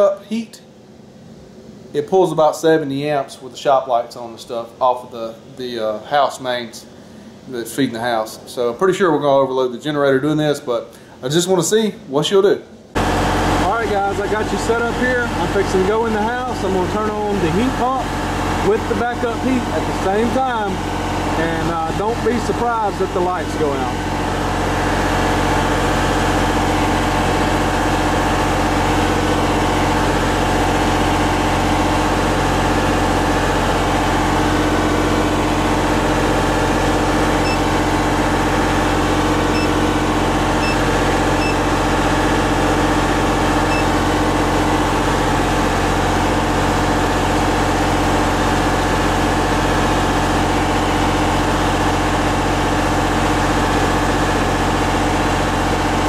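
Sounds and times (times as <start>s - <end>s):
diesel generator engine running: 12.8s - 56.0s
short beeps: 37.4s - 37.7s, 40.6s - 40.8s, 41.4s - 41.6s.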